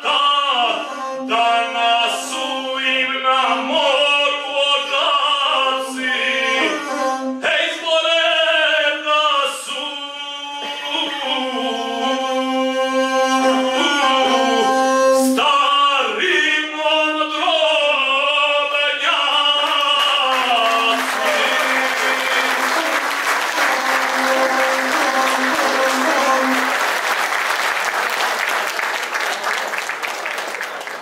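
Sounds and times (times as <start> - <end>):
man singing: 0.0 - 26.7
bowed single-string fiddle: 0.4 - 7.6, 10.6 - 15.4, 21.2 - 26.9
audience applause: 19.6 - 31.0.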